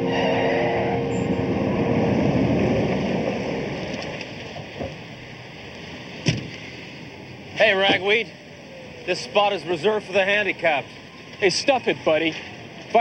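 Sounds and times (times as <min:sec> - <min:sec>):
car engine and tyres: 0:00.0 - 0:13.0
car door slamming: 0:06.2 - 0:06.6.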